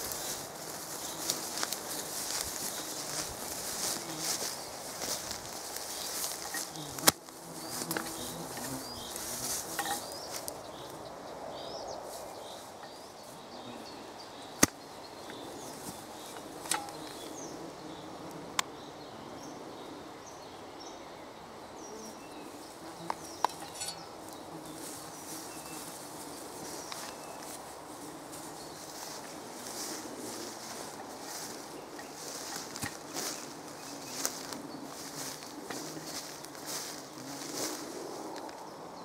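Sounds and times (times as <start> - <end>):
rustling in tall grass: 0.0 - 11.0, 22.4 - 38.6
small birds chirping: 0.0 - 21.0, 21.7 - 39.0.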